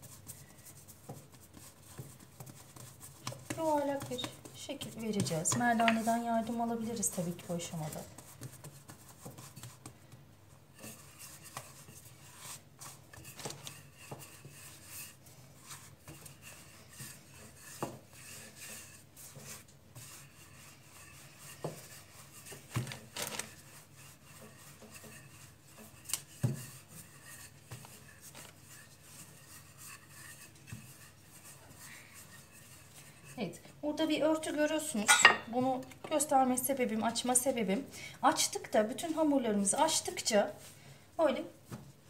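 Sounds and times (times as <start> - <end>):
hands pressing dough: 0.0 - 33.4
rolling pin rolling dough: 0.0 - 37.7.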